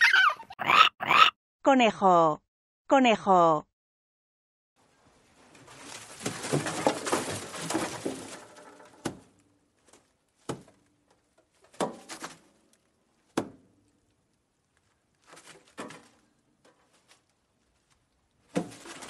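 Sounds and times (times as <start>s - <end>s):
rabbit noises: 0.0s - 1.3s.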